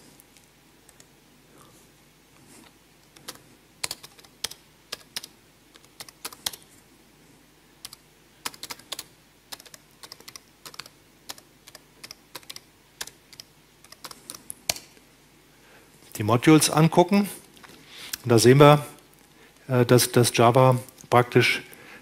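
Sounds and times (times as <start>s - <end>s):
keyboard typing: 3.1s - 6.6s, 7.8s - 14.9s.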